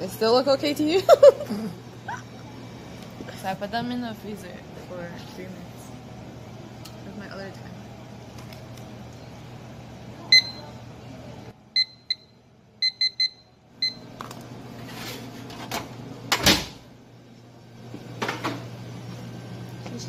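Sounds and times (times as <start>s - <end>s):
kitchen timer beeping: 10.3s - 10.6s, 11.8s - 14.1s.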